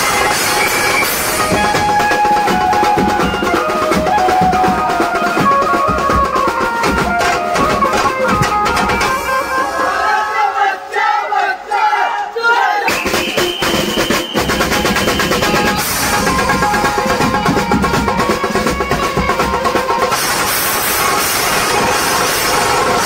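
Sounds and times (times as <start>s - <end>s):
keyboard melody: 0.0s - 10.2s, 14.8s - 20.6s
drums: 0.0s - 10.3s, 12.9s - 23.0s.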